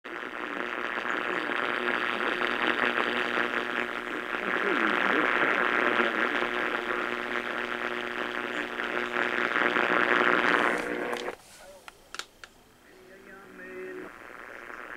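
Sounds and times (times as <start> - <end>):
radio static and hiss: 0.0 - 14.9
low tone buzz: 0.1 - 11.4, 12.6 - 14.9.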